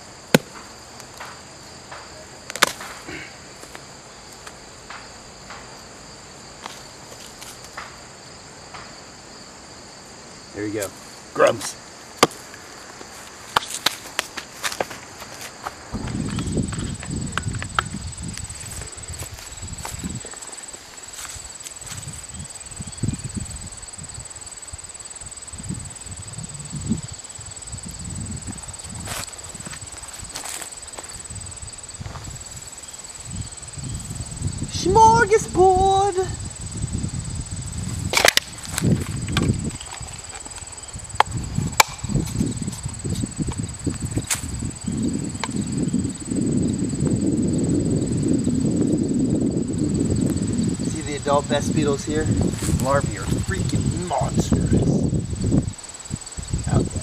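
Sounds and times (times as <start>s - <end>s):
wood snapping: 0.3s - 3.0s, 38.1s - 40.6s, 41.2s - 42.0s.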